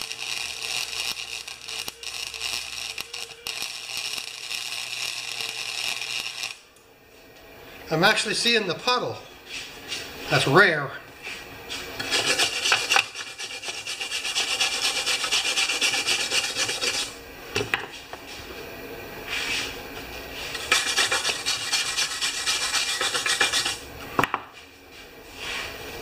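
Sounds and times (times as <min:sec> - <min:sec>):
welder arc crackling: 0:00.0 - 0:06.8, 0:12.0 - 0:17.2, 0:20.4 - 0:23.8.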